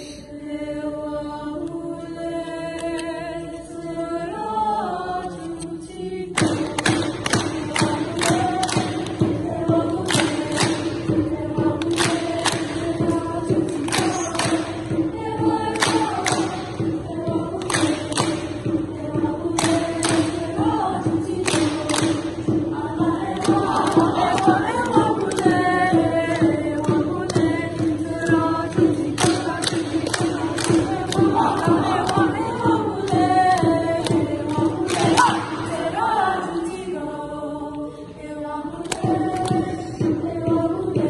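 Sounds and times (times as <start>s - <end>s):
youth choir singing: 0.0s - 41.0s
sharp hand claps: 6.4s - 18.8s, 19.5s - 20.6s, 21.3s - 22.6s, 23.3s - 32.2s, 33.0s - 35.8s.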